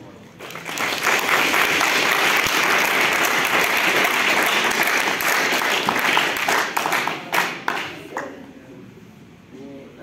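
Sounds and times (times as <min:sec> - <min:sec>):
crowd applauding: 0:00.4 - 0:08.2.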